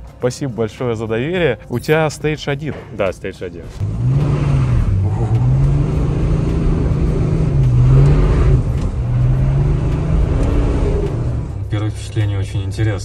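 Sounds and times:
diesel engine drone accelerating: 3.7 - 13.0.

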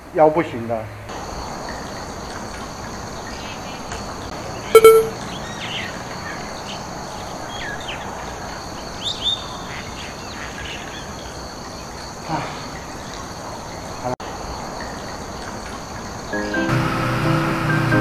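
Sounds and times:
insects buzzing: 1.1 - 16.7
birds chirping: 1.3 - 14.1.

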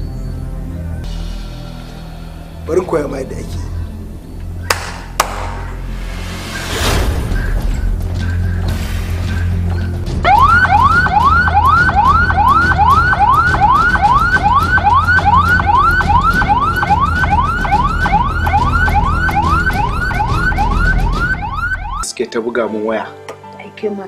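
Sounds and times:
police siren rising sweep: 9.8 - 22.1.

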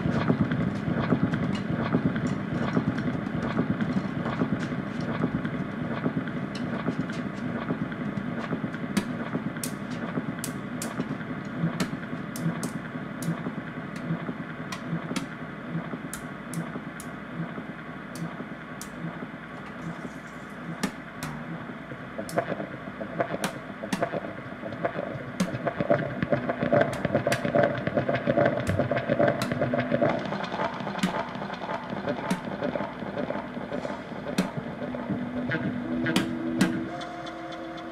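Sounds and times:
sharp percussive clicks: 10.4 - 19.9, 20.7 - 31.4
improvised drums and guitar: 20.6 - 37.9.

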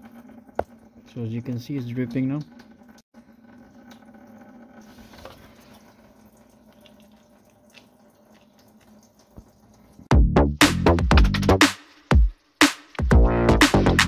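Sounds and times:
coolant dripping and trickling: 0.0 - 10.1
electronic music with heavy beat: 10.1 - 14.0.

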